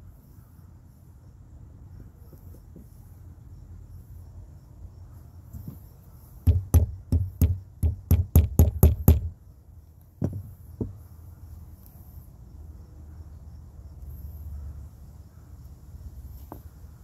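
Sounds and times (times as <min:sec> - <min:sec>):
hammer knocking on leather tool: 0:06.4 - 0:09.3, 0:10.2 - 0:11.0.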